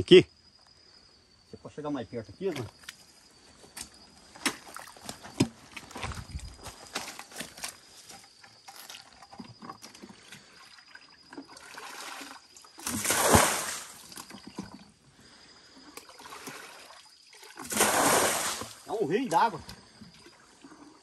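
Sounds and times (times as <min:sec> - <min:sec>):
water sloshing: 0:06.9 - 0:14.9, 0:16.0 - 0:21.0
thrown water splashing: 0:11.3 - 0:14.4, 0:16.0 - 0:19.4.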